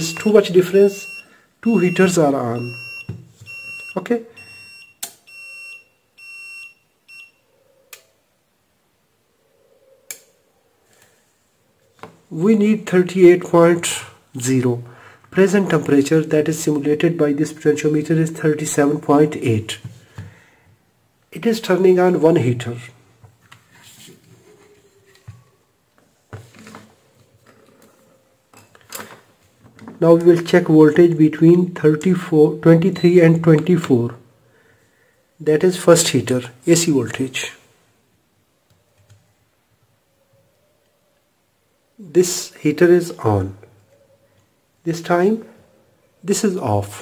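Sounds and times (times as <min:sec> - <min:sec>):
high-pitched alarm buzzer beeping: 0:00.0 - 0:07.4.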